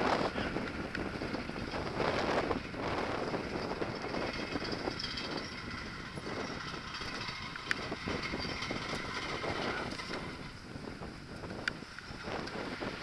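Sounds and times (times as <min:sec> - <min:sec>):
bicycle tyres rolling on concrete: 0:00.0 - 0:13.0
wind on microphone: 0:00.0 - 0:13.0
bike clicks: 0:00.1 - 0:04.5, 0:06.0 - 0:13.0.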